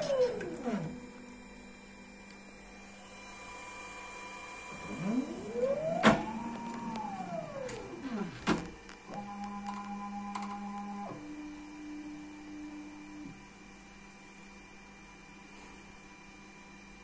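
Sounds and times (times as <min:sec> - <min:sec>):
electric drive whining: 0:00.0 - 0:13.5
faint electrical hum: 0:00.0 - 0:17.0.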